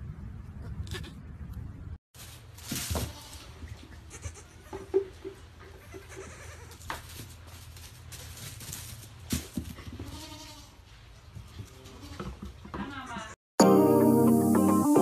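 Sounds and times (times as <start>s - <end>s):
goat kids bleating: 3.0s - 4.9s, 5.7s - 6.8s, 10.0s - 10.8s.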